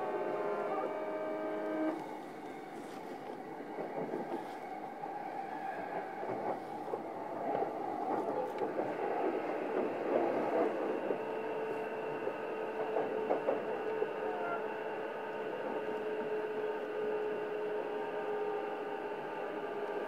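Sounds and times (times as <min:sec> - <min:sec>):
electric train rolling noise: 0:00.0 - 0:20.0.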